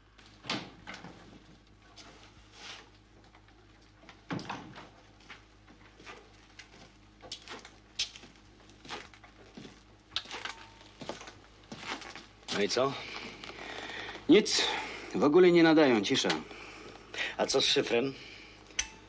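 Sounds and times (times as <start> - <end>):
boots on hard floor: 5.2 - 13.4.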